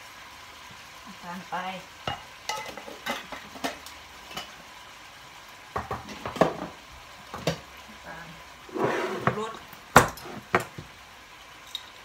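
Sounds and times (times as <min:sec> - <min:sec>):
meat sizzling in a pan: 0:00.0 - 0:12.0
metal pot clanking: 0:02.1 - 0:04.6.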